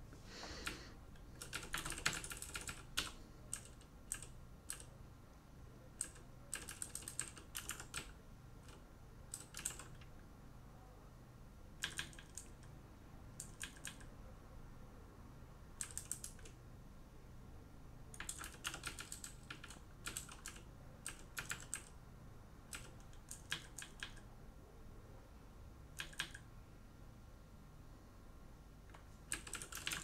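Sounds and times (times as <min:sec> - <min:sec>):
typing on computer keyboard: 0:00.6 - 0:05.0, 0:06.0 - 0:10.1, 0:11.8 - 0:12.7, 0:13.4 - 0:14.1, 0:15.8 - 0:16.6, 0:18.1 - 0:22.0, 0:22.7 - 0:24.3, 0:26.0 - 0:26.5, 0:28.9 - 0:30.0.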